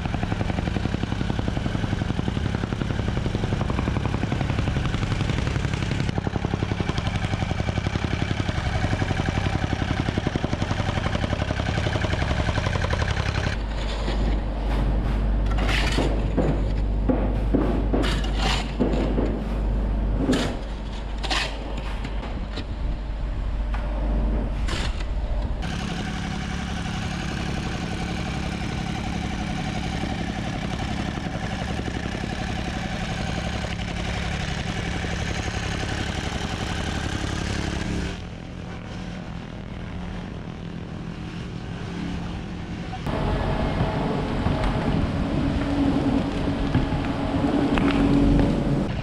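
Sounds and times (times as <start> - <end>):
rammer engine pulsing: 0.0 - 49.0
shovels scraping and dumping fill: 13.6 - 16.8, 18.0 - 21.8.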